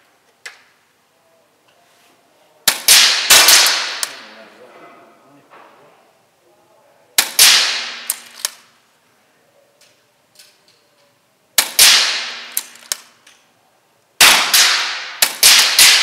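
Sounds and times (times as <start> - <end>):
air rifle shots echoing: 2.7 - 4.3, 7.2 - 8.6, 11.6 - 13.1, 14.2 - 16.0.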